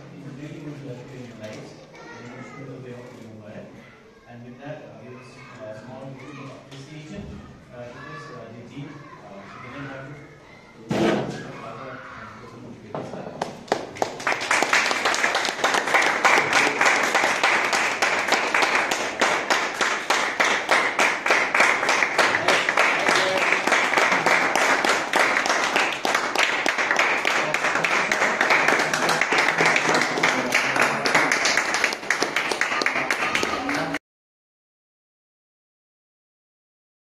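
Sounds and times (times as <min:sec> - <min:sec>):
audience applauding: 0:13.4 - 0:34.0.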